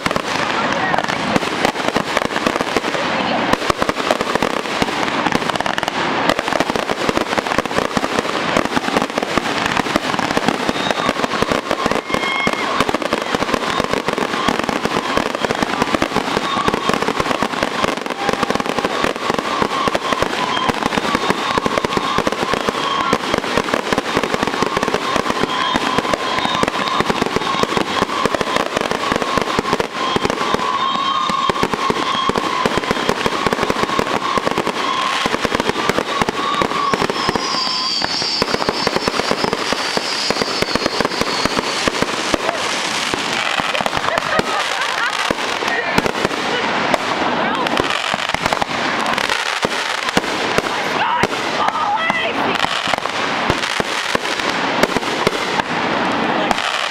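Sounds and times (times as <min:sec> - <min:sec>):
fireworks bangs and crackle: 0:00.0 - 0:56.9
higher whistle: 0:10.4 - 0:23.3, 0:24.6 - 0:45.5
steady whistling tone: 0:29.9 - 0:42.6.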